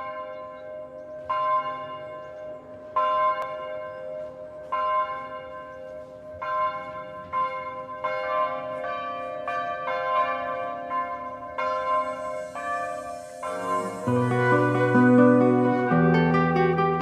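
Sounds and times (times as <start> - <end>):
bell tolling: 11.7 - 17.0.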